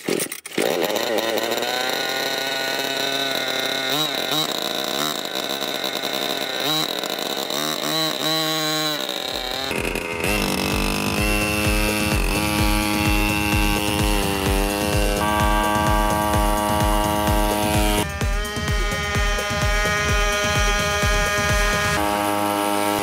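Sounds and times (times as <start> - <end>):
scooter engine revving: 0.0 - 23.0
electronic music with steady beat: 10.2 - 22.2.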